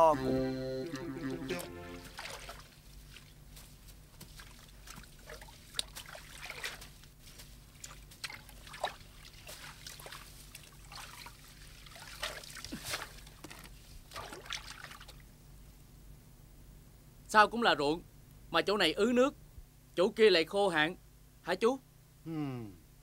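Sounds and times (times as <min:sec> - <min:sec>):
low steady hum: 0:00.0 - 0:23.0
water splashing and trickling: 0:01.6 - 0:03.4, 0:04.2 - 0:07.2, 0:07.8 - 0:15.2.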